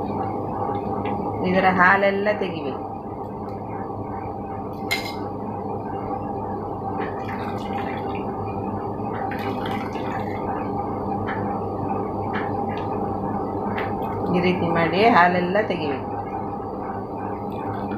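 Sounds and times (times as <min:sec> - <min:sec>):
steady background hum: 0:00.0 - 0:17.9
liquid dribbling into bowl: 0:07.1 - 0:08.3, 0:09.2 - 0:10.6.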